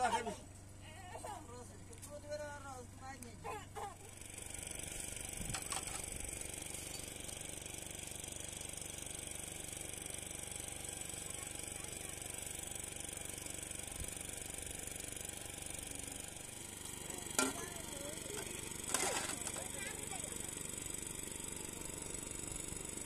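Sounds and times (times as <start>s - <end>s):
steady mechanical drone: 0.0s - 23.0s
metal cups being scrubbed: 18.3s - 19.8s.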